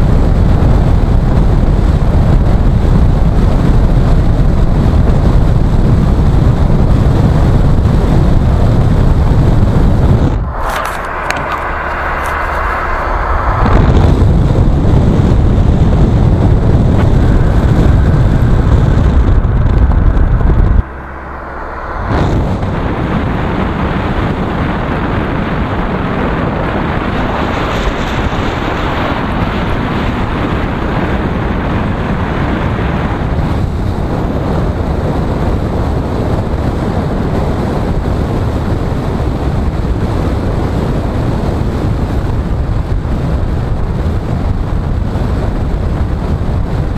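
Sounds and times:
heavy low rumble: 0.0s - 46.9s
tyre and road noise: 1.4s - 46.9s.

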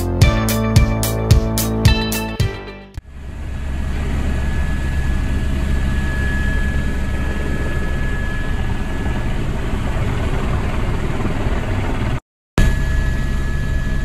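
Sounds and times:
thin high whine: 3.0s - 10.3s, 12.6s - 14.0s
helicopter rotor and engine rumble: 3.1s - 14.0s.

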